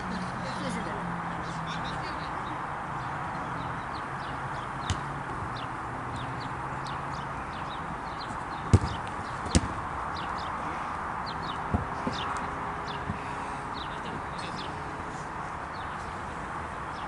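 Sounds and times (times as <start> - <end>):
birds chirping: 0.0 - 17.0
outdoor background noise: 0.0 - 17.0
football kick thuds: 4.8 - 5.1, 8.6 - 9.8, 11.7 - 12.3.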